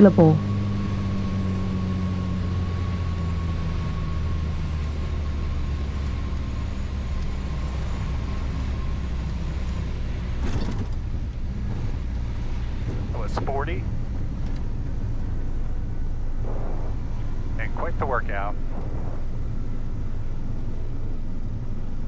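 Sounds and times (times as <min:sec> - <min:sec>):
airplane engine and propeller drone: 0:00.0 - 0:22.0.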